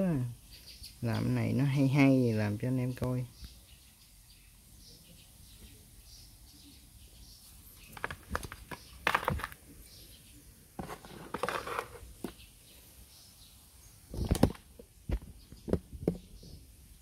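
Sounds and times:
scraping and rustling: 7.7s - 9.8s, 10.7s - 12.5s
objects knocking and clicking: 7.8s - 9.6s, 10.8s - 12.4s, 14.2s - 16.3s.

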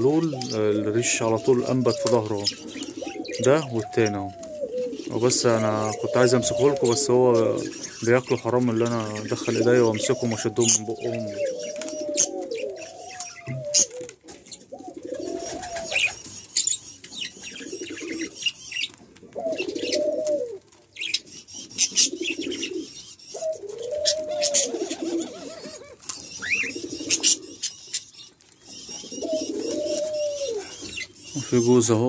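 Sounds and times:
doves cooing: 0.0s - 32.0s.

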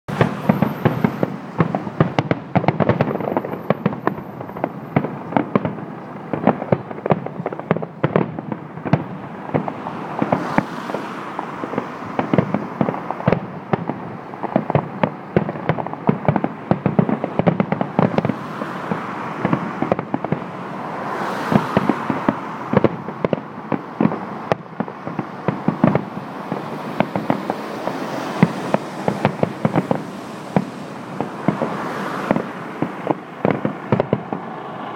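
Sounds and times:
fireworks bangs and crackling: 0.1s - 34.9s.

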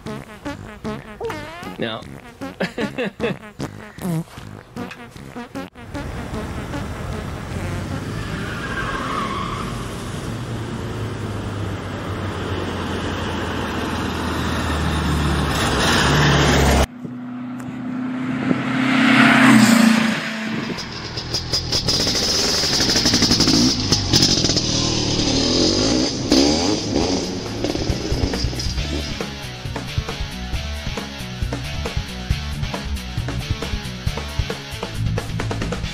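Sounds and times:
engine running and revving: 4.5s - 30.6s
second engine: 4.7s - 30.4s.

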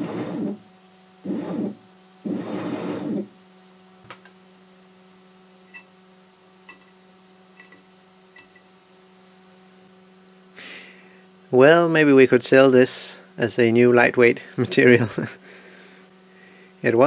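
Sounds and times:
stepper motors buzzing: 0.0s - 4.4s
electrical hum: 0.0s - 17.0s.

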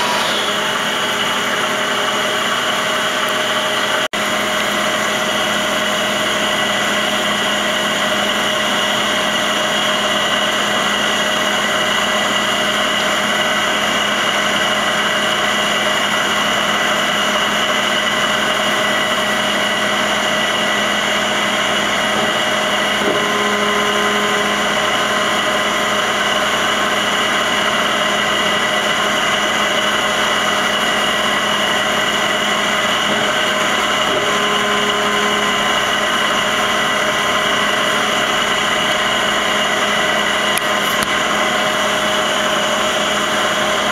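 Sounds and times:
high steady whining tones: 0.0s - 43.9s
lower drive whine: 0.0s - 43.9s
machine hum: 0.0s - 43.9s.

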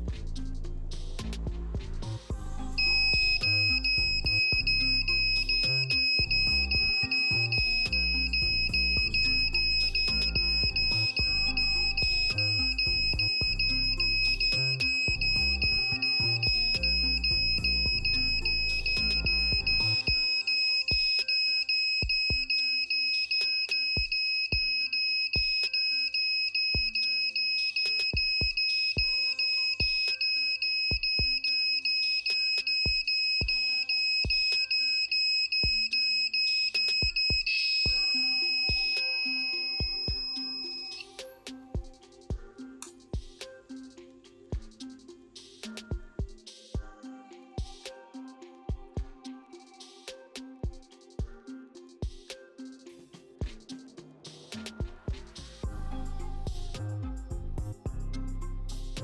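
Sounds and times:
music with a beat: 0.0s - 59.0s
alarm buzzer high-pitched tone: 2.8s - 41.0s.

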